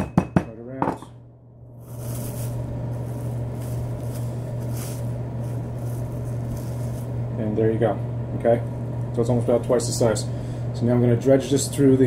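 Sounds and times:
steady low hum: 0:00.0 - 0:12.0
plastic wrap crinkling: 0:01.8 - 0:07.2.

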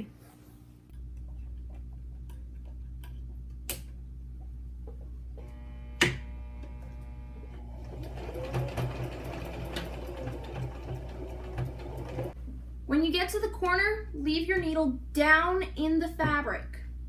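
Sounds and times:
sewing machine stitching: 0:07.7 - 0:12.4.

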